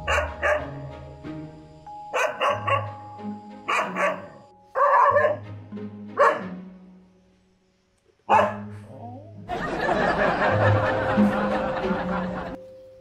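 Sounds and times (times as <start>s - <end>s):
background music: 0.0s - 13.0s
dog barking sharply: 0.1s - 0.7s, 2.2s - 2.9s, 3.7s - 5.4s, 6.2s - 6.5s, 8.3s - 8.7s.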